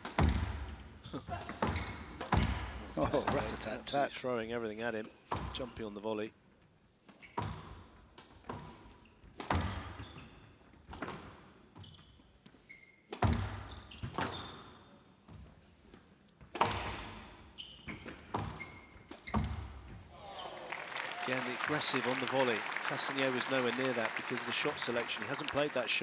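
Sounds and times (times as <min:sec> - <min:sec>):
shoes squeaking on court: 0:01.0 - 0:02.5, 0:08.5 - 0:16.2, 0:17.2 - 0:20.6
applause: 0:20.6 - 0:26.0.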